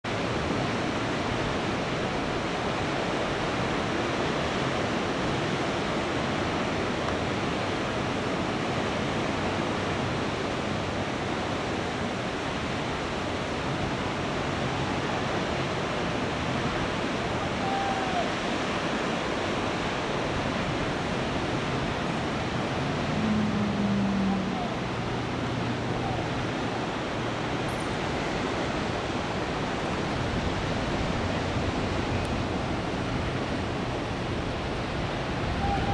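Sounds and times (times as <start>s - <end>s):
ocean surf breaking: 0.1s - 35.9s.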